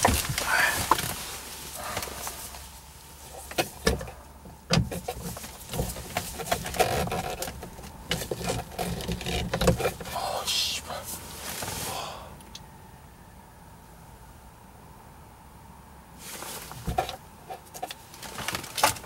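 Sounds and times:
plastic trim rattling: 4.7 - 10.1.

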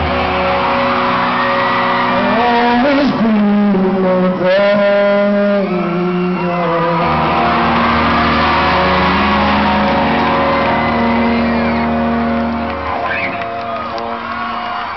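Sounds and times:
crowd cheering and screaming: 0.0 - 14.9
rock band final chord: 7.1 - 14.7.

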